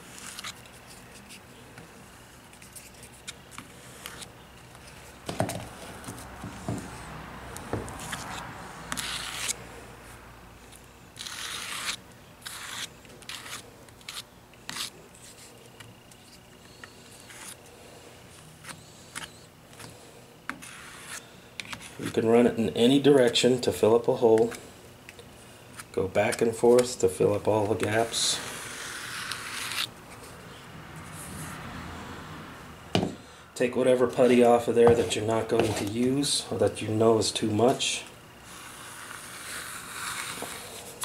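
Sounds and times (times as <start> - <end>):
putty knife scraping: 8.0 - 9.6, 11.2 - 17.6, 18.6 - 22.3, 27.6 - 29.9, 38.5 - 41.0.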